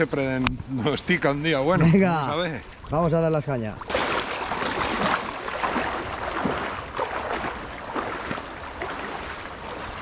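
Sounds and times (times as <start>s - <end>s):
stream rushing: 3.8s - 10.0s
water sloshing around wading legs: 3.8s - 10.0s.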